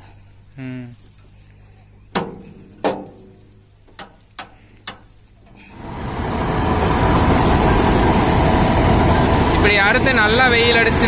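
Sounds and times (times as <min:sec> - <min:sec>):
harvester machinery running: 0:05.4 - 0:11.0.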